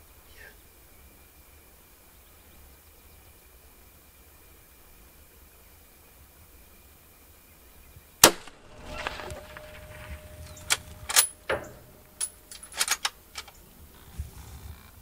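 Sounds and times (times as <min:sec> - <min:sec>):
loud rifle shot: 0:08.2 - 0:11.9
sharp clicks and knocks: 0:08.2 - 0:13.6.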